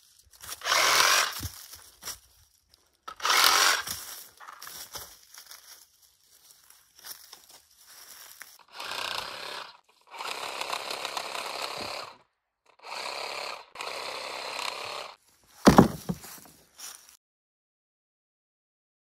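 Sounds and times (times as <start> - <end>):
reciprocating saw cutting branches: 0.4 - 1.8, 3.1 - 4.8, 8.5 - 16.5
heavy thump: 15.6 - 16.4.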